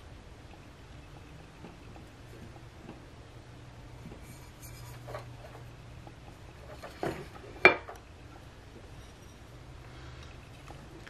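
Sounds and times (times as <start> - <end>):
rubbing and scraping: 4.0 - 5.7.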